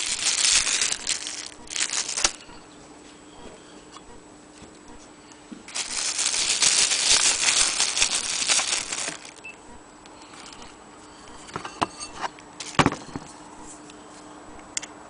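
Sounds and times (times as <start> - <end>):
plastic sheeting crinkling: 0.0 - 2.4, 5.7 - 9.4.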